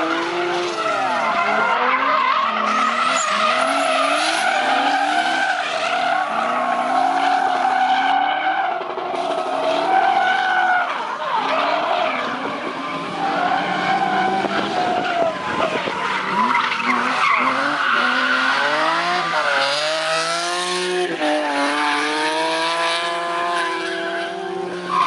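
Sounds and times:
tyres squealing on tarmac: 0.0s - 19.4s, 24.8s - 25.0s
high-revving car engines: 0.0s - 25.0s.

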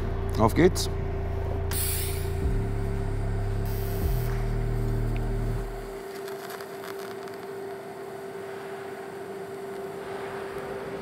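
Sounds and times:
thin steady whine: 0.0s - 11.0s
welder electrical hum: 0.0s - 11.0s
light crackling: 4.2s - 8.2s.

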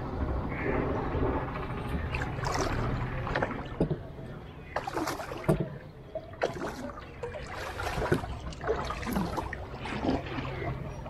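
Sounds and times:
paddle splashing through water: 2.1s - 4.1s, 4.8s - 10.9s
water trickling off paddle: 4.8s - 11.0s.

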